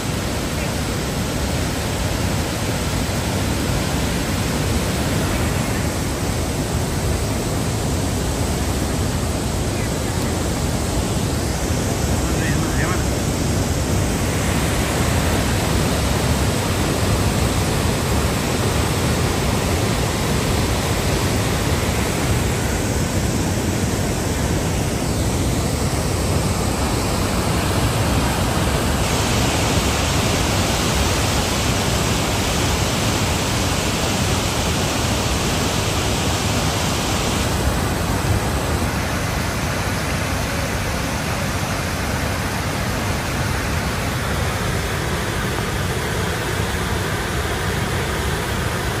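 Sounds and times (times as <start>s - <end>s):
large waterfall rushing: 0.0s - 49.0s.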